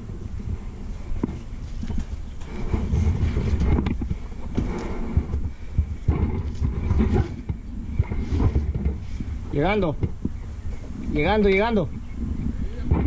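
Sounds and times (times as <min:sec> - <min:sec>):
knocks bumps and rustling: 0:01.2 - 0:10.4.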